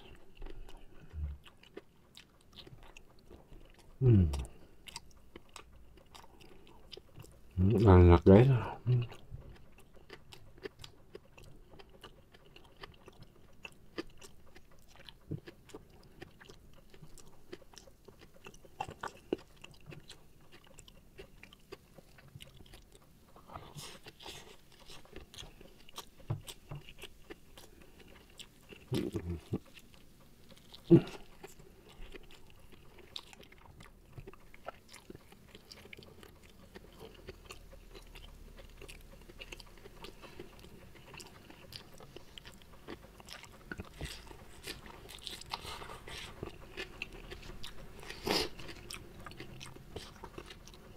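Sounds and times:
wet chewing and crunching: 0:00.0 - 0:50.9.

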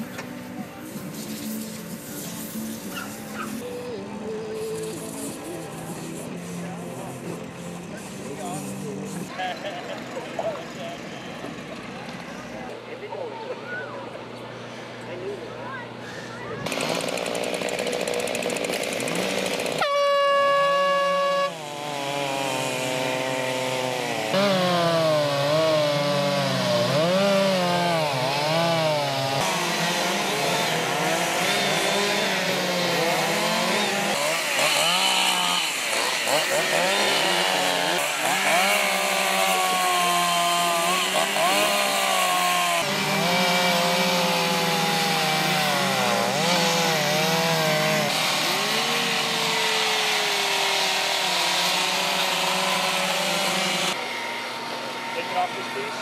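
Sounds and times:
chainsaws revving and cutting: 0:16.6 - 0:56.0
air horn blast: 0:19.8 - 0:21.6.

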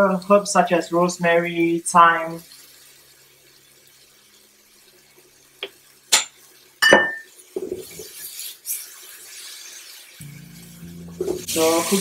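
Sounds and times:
food stirred in hissing pan: 0:01.9 - 0:12.0
glass jar knocking on pan: 0:06.2 - 0:07.3.

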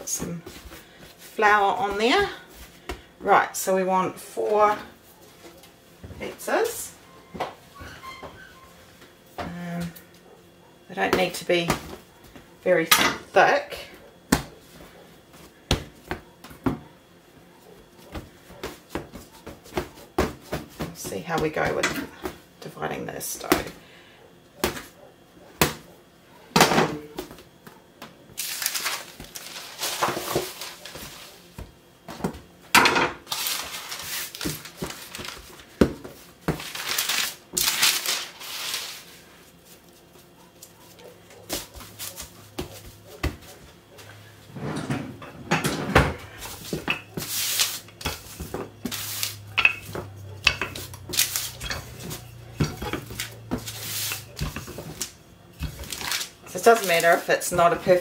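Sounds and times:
rolling pin on baking paper: 0:28.4 - 0:31.8, 0:33.3 - 0:44.7, 0:46.3 - 0:58.0.

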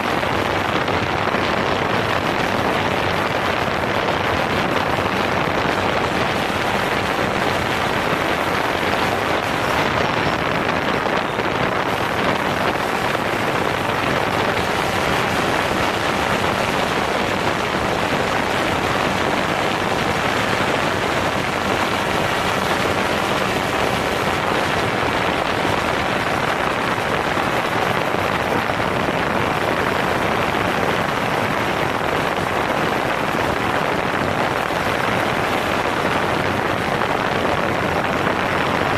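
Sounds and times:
drone propellers rushing: 0:00.0 - 0:38.9.

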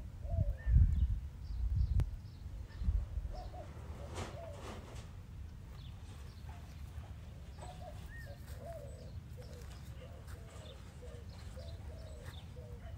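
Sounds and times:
dove cooing: 0:00.2 - 0:00.9, 0:03.2 - 0:05.1, 0:06.4 - 0:12.9.

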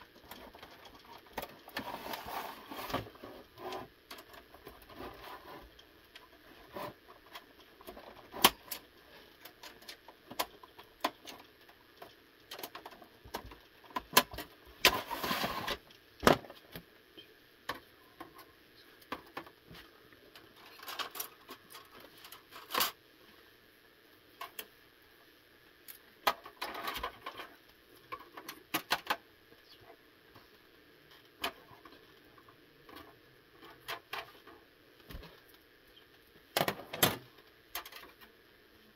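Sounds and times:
clicks and clatters of parts handled: 0:00.0 - 0:16.9, 0:17.7 - 0:23.0, 0:25.9 - 0:29.2, 0:31.1 - 0:35.6, 0:36.5 - 0:38.3
rustling scrapes: 0:01.6 - 0:07.3, 0:14.8 - 0:15.8.

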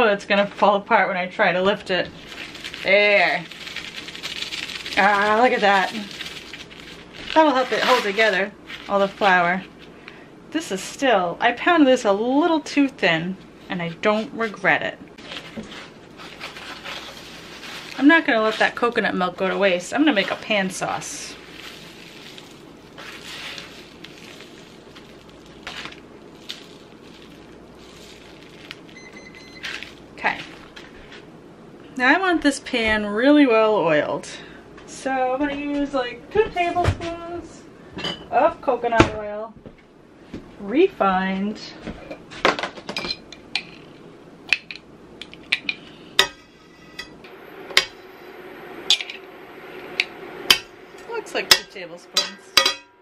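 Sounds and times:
paper plates rustling and scraping: 0:02.2 - 0:09.9, 0:15.2 - 0:29.0
pan ringing from loud strike: 0:50.5 - 0:53.0.

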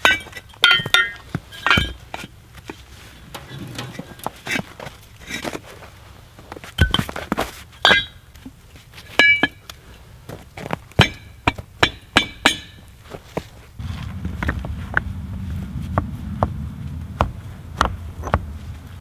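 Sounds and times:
bricks clinking and knocking: 0:03.3 - 0:05.6.

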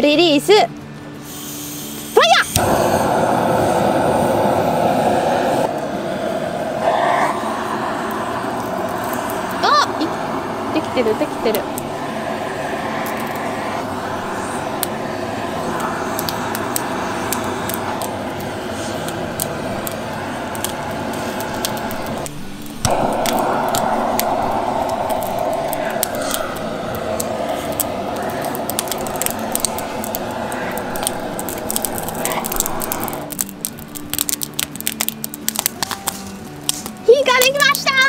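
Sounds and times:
gas torch hissing: 0:01.2 - 0:37.5
wood crackling: 0:06.8 - 0:37.6.

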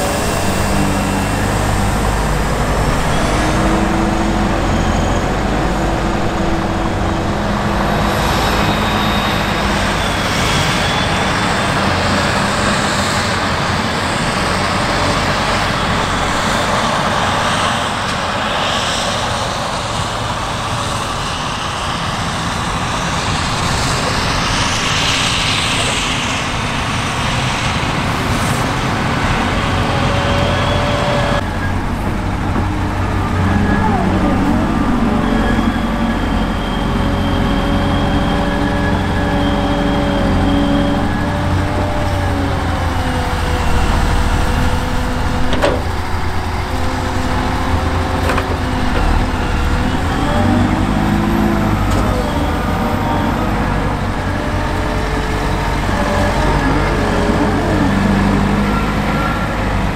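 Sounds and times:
truck diesel engines: 0:00.0 - 0:59.9.

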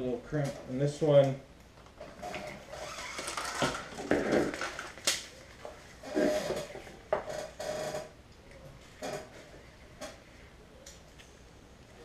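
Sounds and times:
packaging rustling and knocking: 0:03.1 - 0:05.2.

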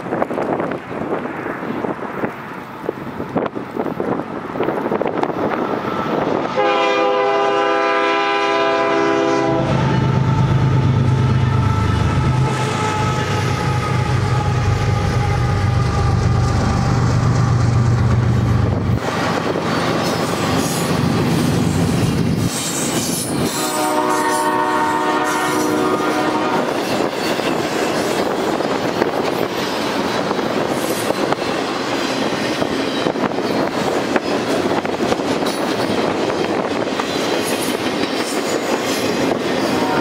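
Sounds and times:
locomotive engines rumbling: 0:00.0 - 0:40.0
locomotive air horn chord: 0:06.6 - 0:16.2, 0:23.6 - 0:26.8, 0:39.7 - 0:40.0
train wheels clattering: 0:12.8 - 0:40.0.

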